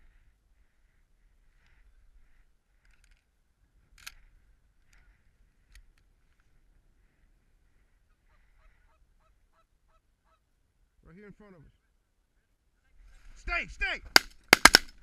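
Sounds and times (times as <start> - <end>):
faint clicks: 2.7 - 3.3, 3.9 - 6.5.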